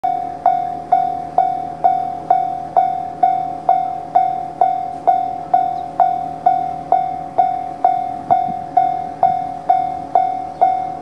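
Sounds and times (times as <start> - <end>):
level-crossing alarm bell ringing: 0.0 - 11.0.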